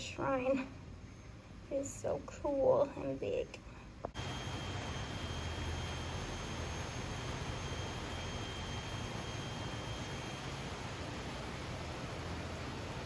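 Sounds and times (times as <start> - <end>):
thin high steady tone: 0.0 - 13.0.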